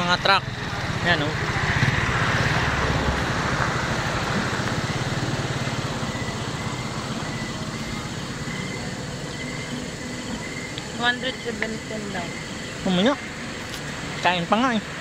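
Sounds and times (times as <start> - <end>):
small motorcycle engine running: 0.0 - 15.0.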